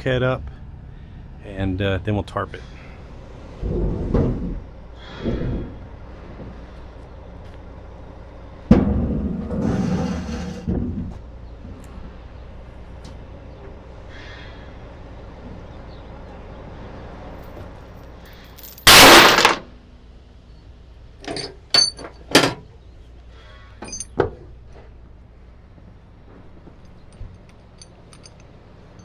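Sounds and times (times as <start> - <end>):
steel chains crashing onto trailer: 18.2 - 19.7, 21.2 - 22.3, 23.8 - 24.2.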